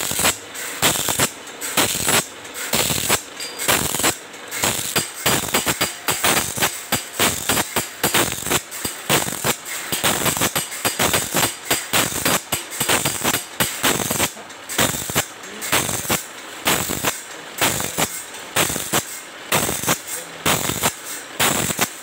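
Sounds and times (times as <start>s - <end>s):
sharp metallic clacks: 0.0s - 22.0s.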